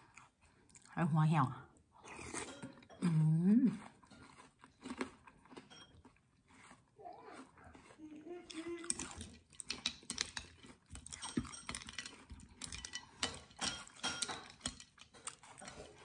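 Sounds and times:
crunchy chewing: 3.7s - 16.0s
metal spoon stirring in bowl: 5.6s - 6.2s, 8.8s - 16.0s.

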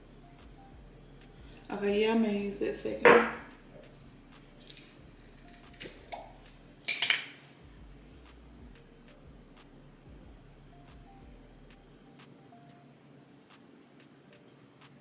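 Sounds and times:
glass jar knocking on counter: 3.0s - 3.5s.

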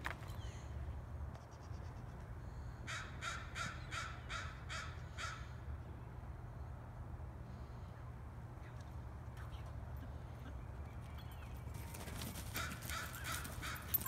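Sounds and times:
bird calling harsh crow-like notes: 2.8s - 5.7s, 12.5s - 14.0s.

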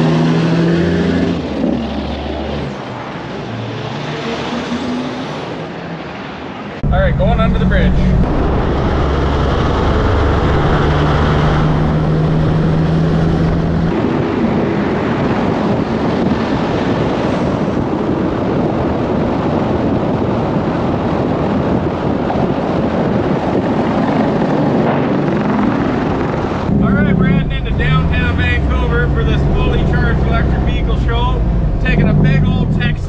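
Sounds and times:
road and wind noise: 0.0s - 33.0s
truck engine drone: 6.7s - 14.6s, 25.4s - 33.0s.

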